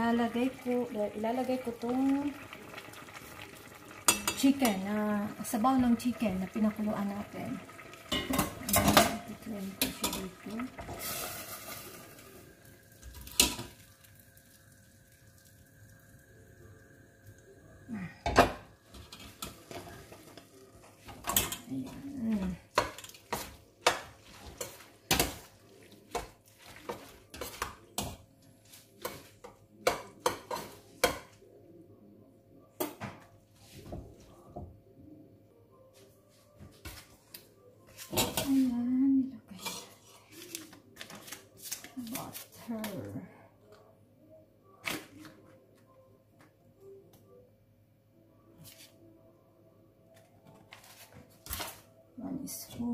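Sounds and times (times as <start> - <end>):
metal spoons clinking on a pot: 4.1 - 4.8, 8.1 - 10.4, 21.1 - 21.9.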